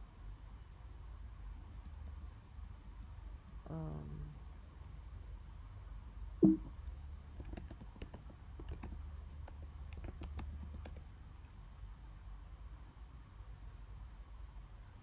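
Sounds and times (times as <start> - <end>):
faint steady low hum: 0.0 - 15.0
keyboard key clicks: 7.4 - 11.0.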